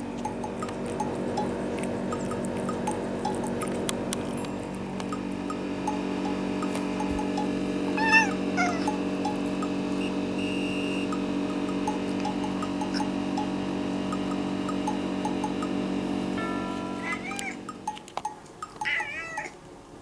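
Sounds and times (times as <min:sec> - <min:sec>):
cat meowing: 0:08.0 - 0:09.0, 0:16.4 - 0:17.6, 0:18.8 - 0:19.6.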